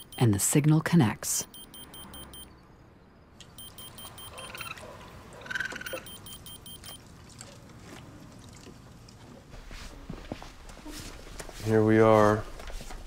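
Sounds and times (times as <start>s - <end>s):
rapid high electronic beeps: 0.0s - 0.3s, 1.4s - 2.5s, 3.6s - 4.7s, 5.9s - 7.0s.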